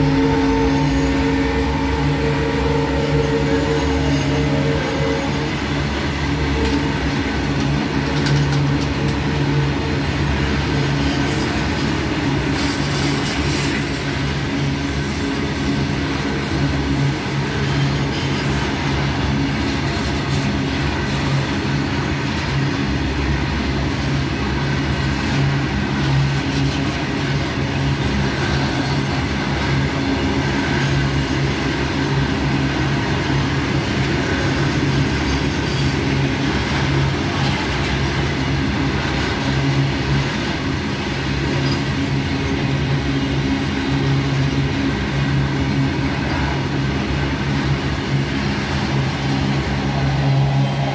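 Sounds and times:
high-pitched wheel squeals: 0.0 - 5.8
freight train wheels rumbling: 0.0 - 50.9.

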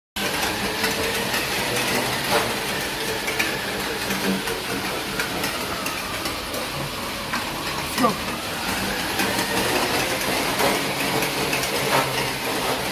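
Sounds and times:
treadmill slats clattering: 9.2 - 12.9.

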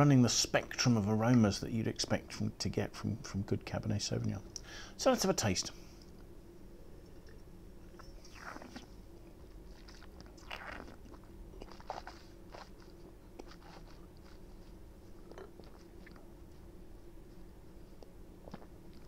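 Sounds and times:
person slurping wine: 8.2 - 8.9, 9.7 - 12.7.

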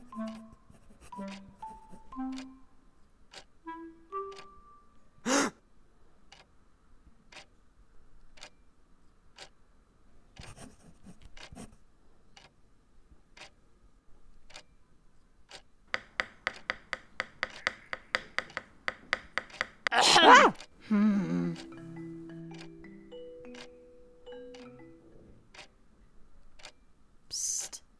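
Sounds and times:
clock ticking: 0.0 - 2.7, 3.3 - 4.8, 6.3 - 6.5, 7.3 - 7.6, 8.2 - 8.6, 9.4 - 9.6, 10.4 - 12.6, 13.4 - 13.6, 14.4 - 14.8, 15.4 - 20.8, 21.4 - 25.8, 26.4 - 26.8
pencil tapping on a desk: 15.9 - 20.0.

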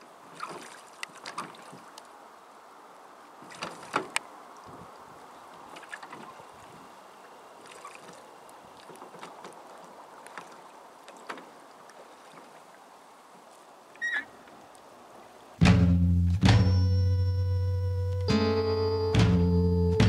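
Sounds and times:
faint water wash: 0.0 - 15.8
oars knocking and clicking: 3.4 - 4.3, 8.8 - 12.5
short high squeak: 14.0 - 14.3, 16.6 - 20.0.

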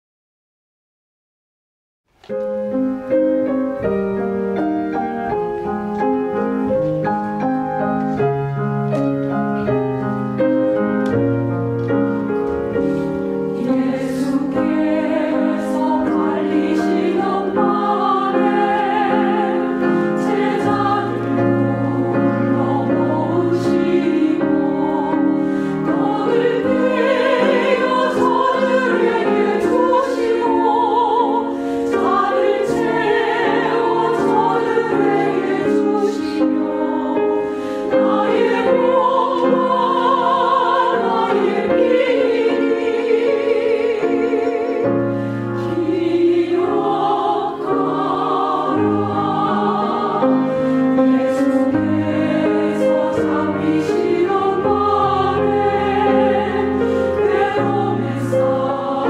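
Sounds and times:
piano accompaniment: 2.1 - 59.0
women's choir singing: 12.6 - 59.0.

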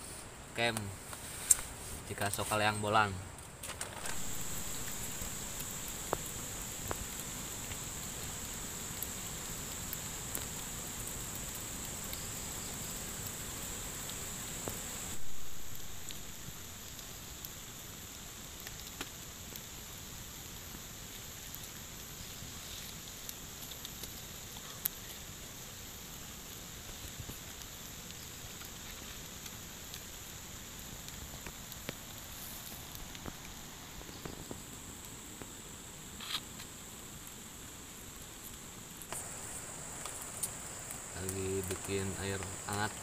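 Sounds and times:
campfire crackling: 0.0 - 43.0
rain and river hiss: 0.0 - 43.0
fire pops: 0.6 - 43.0
high insect buzz: 4.0 - 18.1, 28.7 - 37.8, 39.1 - 43.0.

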